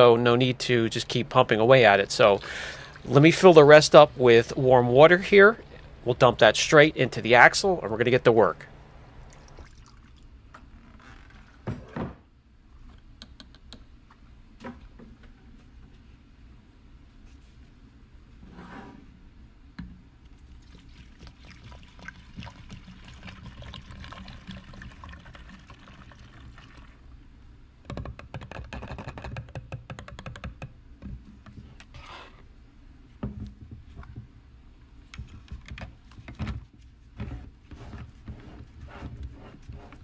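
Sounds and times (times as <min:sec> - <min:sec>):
liquid pouring and splashing: 0:02.2 - 0:03.4, 0:09.2 - 0:10.4, 0:20.4 - 0:27.1
plastic clicks and knocks: 0:27.8 - 0:31.6.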